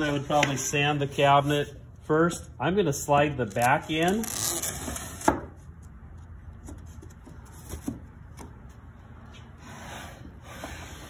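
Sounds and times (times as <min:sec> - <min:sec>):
wood scraping on wood: 0:09.4 - 0:11.0.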